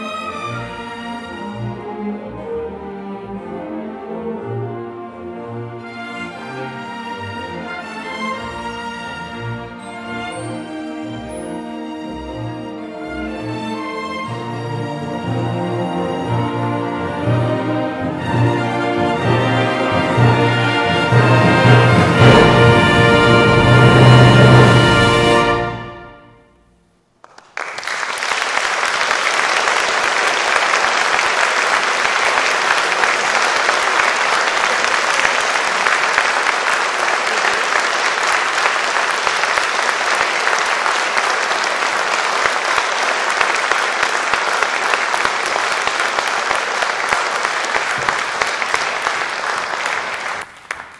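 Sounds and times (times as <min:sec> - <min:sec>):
audience applause: 0:27.2 - 0:50.9.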